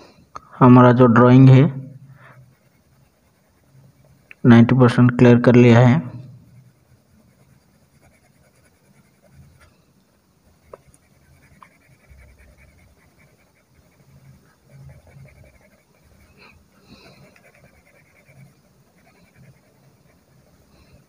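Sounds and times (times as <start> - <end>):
pencil scratching on paper: 2.0 - 4.7, 6.1 - 9.8, 10.6 - 21.0.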